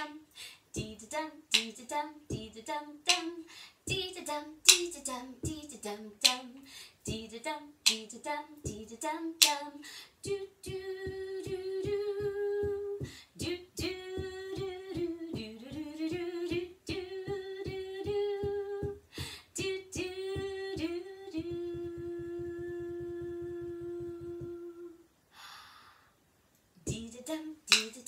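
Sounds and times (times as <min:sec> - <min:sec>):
woman singing wordless melody: 0:00.0 - 0:25.2, 0:26.8 - 0:28.0
woman humming: 0:21.4 - 0:25.0.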